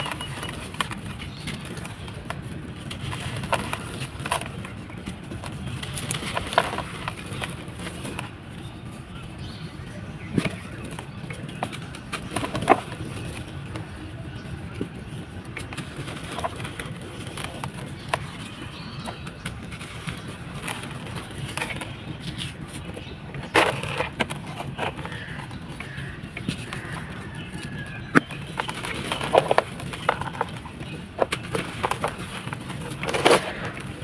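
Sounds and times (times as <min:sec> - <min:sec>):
sand-cement balls crunching: 0:15.6 - 0:34.0.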